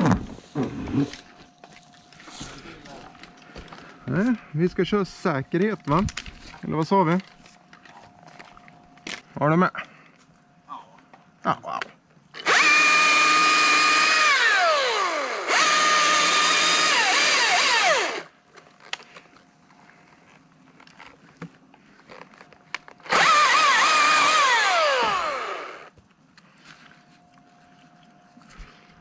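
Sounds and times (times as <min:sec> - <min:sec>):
electric chainsaw motor whining: 0:12.4 - 0:18.3, 0:23.0 - 0:26.0.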